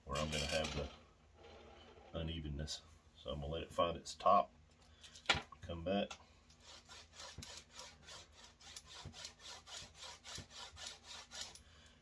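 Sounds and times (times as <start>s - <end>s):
hand rubbing wooden shaft: 6.5s - 11.6s.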